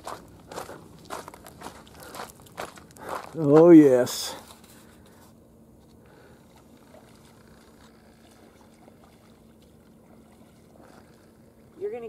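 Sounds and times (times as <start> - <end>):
water splashing and trickling: 6.2 - 12.0.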